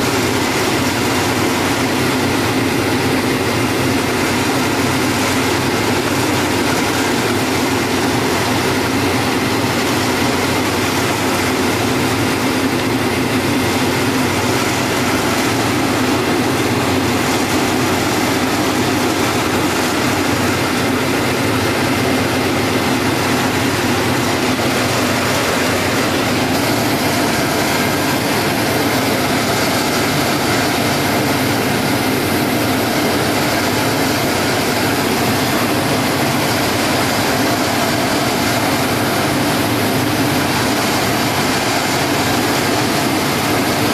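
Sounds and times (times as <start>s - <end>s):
belt grinder mechanical drone: 11.6s - 43.9s.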